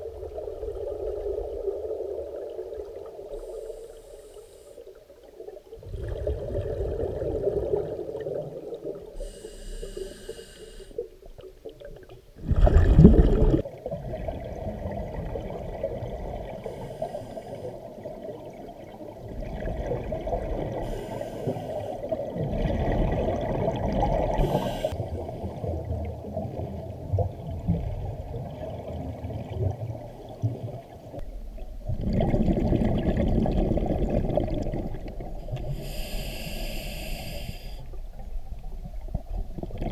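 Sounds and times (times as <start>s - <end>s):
exhaled bubbles rumbling: 0.0s - 3.3s, 5.0s - 9.2s, 11.1s - 21.2s, 21.8s - 35.8s, 37.8s - 39.9s
diver inhaling through regulator: 3.3s - 4.9s, 9.2s - 11.0s, 16.5s - 17.8s, 20.8s - 22.2s, 24.3s - 25.0s, 35.6s - 38.0s.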